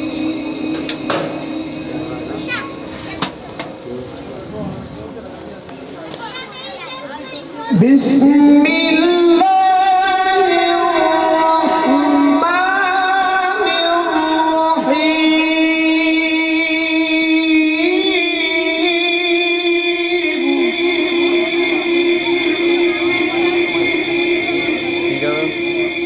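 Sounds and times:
man reciting melodically: 0:07.7 - 0:26.0.

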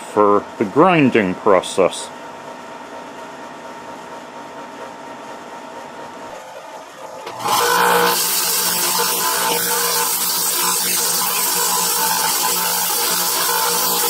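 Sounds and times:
belt grinder grinding steel: 0:07.3 - 0:14.0.

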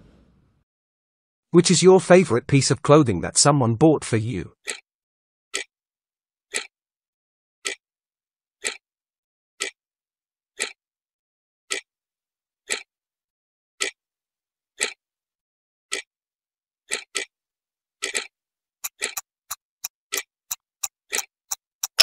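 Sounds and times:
timer ticking: 0:18.0 - 0:22.0.

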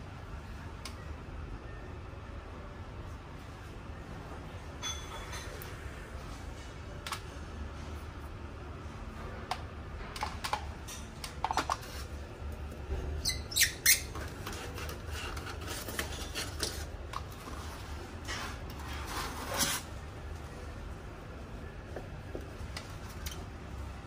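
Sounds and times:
foam packaging squeaking: 0:13.2 - 0:16.8.

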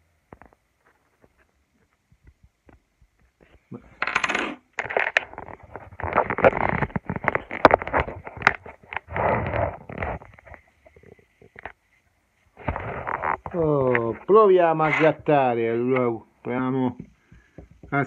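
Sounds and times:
small hard objects clattering: 0:04.0 - 0:11.8.

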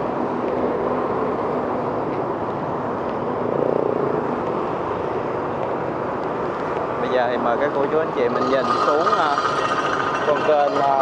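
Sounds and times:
road traffic noise: 0:00.0 - 0:11.0.

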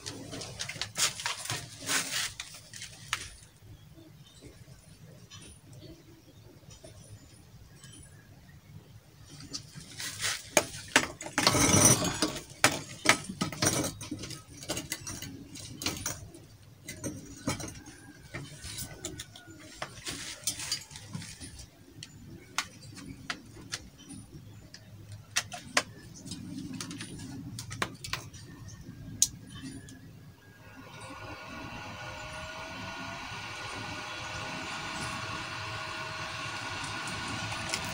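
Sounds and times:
metal pipes clinking and rattling: 0:00.0 - 0:03.6, 0:09.3 - 0:31.3.

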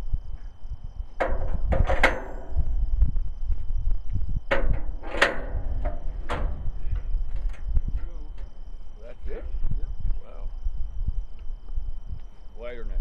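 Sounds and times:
low steady rumble: 0:00.0 - 0:13.0
sharp ringing knocks: 0:01.2 - 0:02.9, 0:04.5 - 0:09.6.

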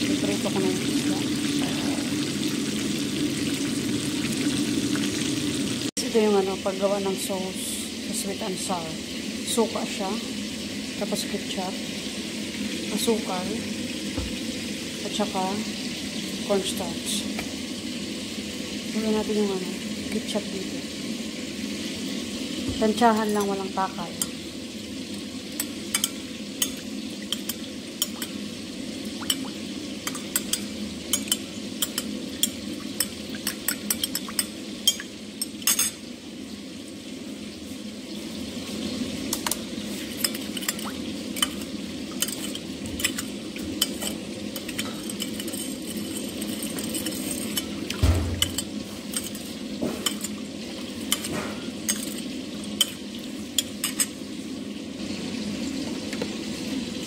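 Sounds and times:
metal spoon clinking in glass bowl: 0:30.0 - 0:36.0, 0:42.2 - 0:47.7.

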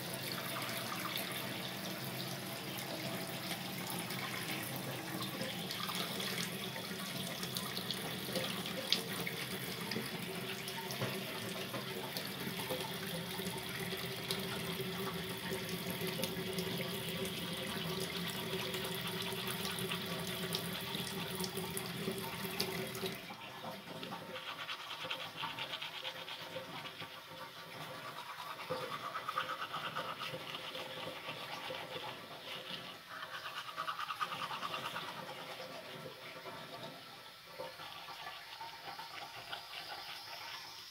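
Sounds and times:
tap water running into sink: 0:00.0 - 0:24.4.

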